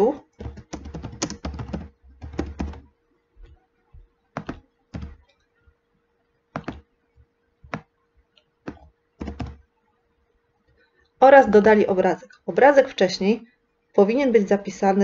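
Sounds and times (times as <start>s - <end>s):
keyboard typing: 0.0s - 5.6s, 6.5s - 7.0s, 7.6s - 8.0s, 8.6s - 9.7s.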